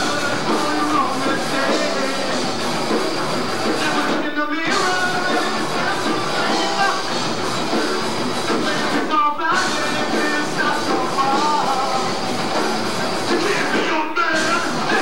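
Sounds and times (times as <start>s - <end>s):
person singing: 0.0s - 2.4s, 3.6s - 7.2s, 8.5s - 12.3s, 13.2s - 15.0s
live rock band playing: 0.0s - 15.0s.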